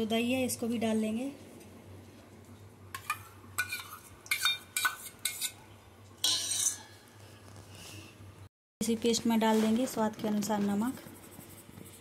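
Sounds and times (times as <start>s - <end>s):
spoon clinking on steel bowls: 3.0s - 5.6s, 6.2s - 6.9s.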